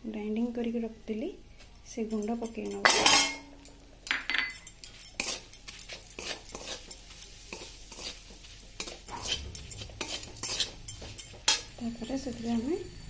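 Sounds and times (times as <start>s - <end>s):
oil sizzling: 1.7s - 13.0s
spoon scraping metal pan: 2.4s - 3.5s, 4.5s - 12.9s.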